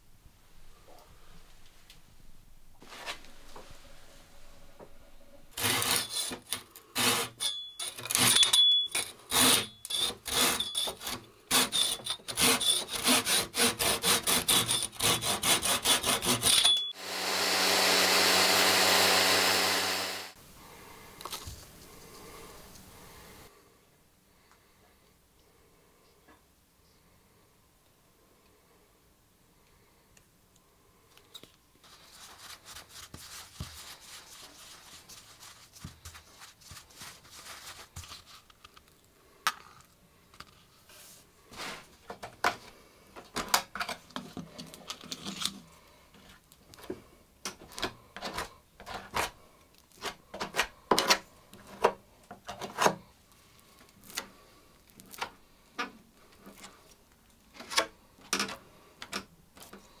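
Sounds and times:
tool scraping on wood: 0:05.5 - 0:08.4, 0:09.0 - 0:20.4.

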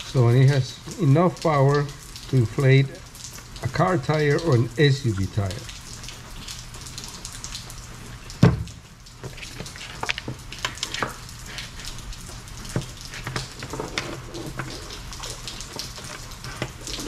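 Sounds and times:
heavy rain hissing: 0:00.0 - 0:17.0
loud thump: 0:08.4 - 0:08.7.

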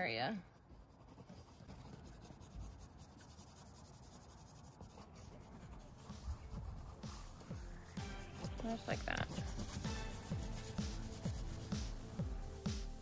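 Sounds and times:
oil pastel rubbing on paper: 0:00.0 - 0:12.2.

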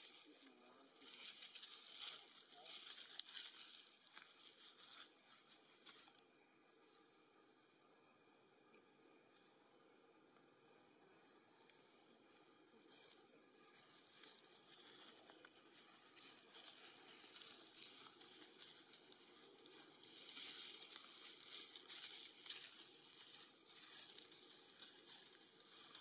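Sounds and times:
light rustling in trees: 0:00.0 - 0:26.0
soft outdoor hiss: 0:00.0 - 0:26.0.

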